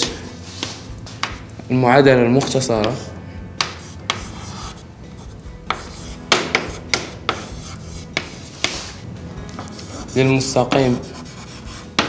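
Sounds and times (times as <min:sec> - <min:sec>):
chalk scratching on blackboard: 0:02.6 - 0:12.0.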